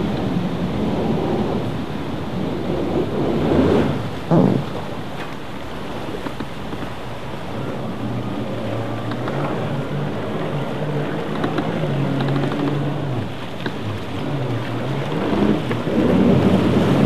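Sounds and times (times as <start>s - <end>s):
churning water rushing: 0.0s - 17.0s
jet ski engine running: 0.0s - 17.0s.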